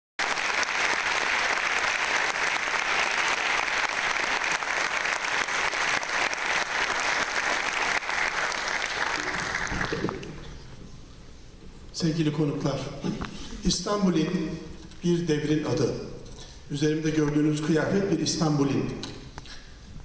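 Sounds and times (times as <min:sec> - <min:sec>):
audience applauding: 0:00.2 - 0:10.5.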